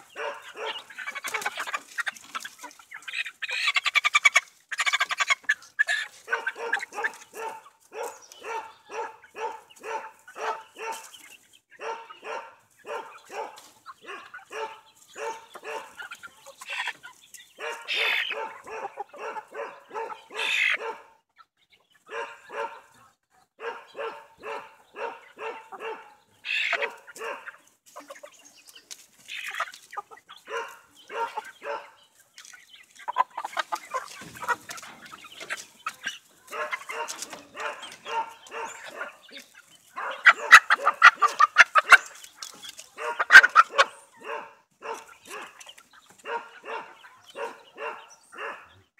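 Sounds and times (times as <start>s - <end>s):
hens squawking: 0.0s - 48.8s
hens clucking: 0.0s - 48.9s.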